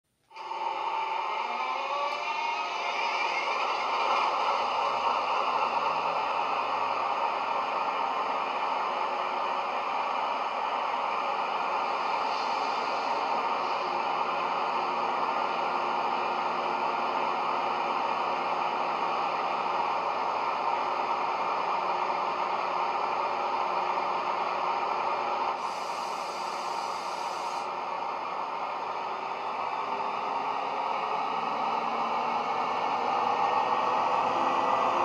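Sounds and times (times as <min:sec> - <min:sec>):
high hiss: 0:25.6 - 0:27.7.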